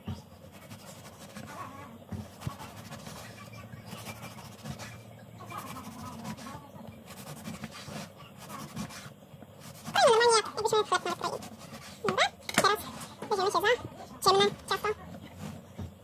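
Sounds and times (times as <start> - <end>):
knife sawing through cake: 0.4 - 12.2.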